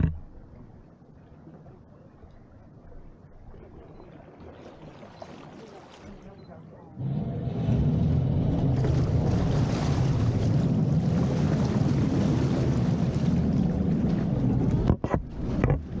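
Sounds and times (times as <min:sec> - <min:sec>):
boat engine rumble: 0:00.0 - 0:16.0
water rushing past: 0:03.6 - 0:16.0.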